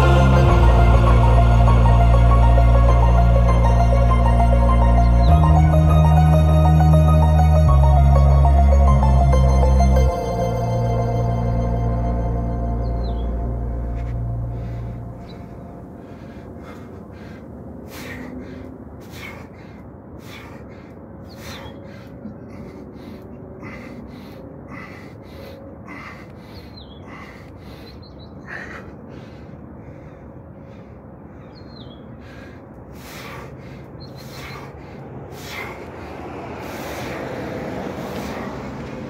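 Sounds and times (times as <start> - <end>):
man breathing hard: 0.0 - 5.6, 13.8 - 39.0.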